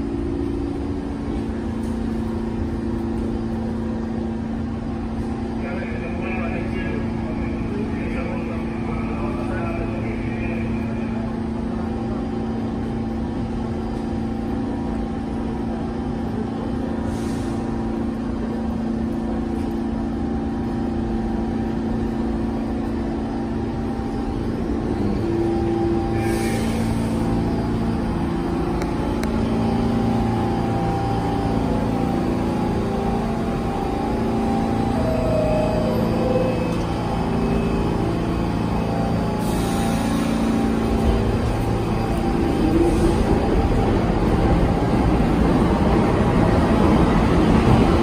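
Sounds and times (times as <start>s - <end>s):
subway train motors rumbling: 0.0s - 48.0s.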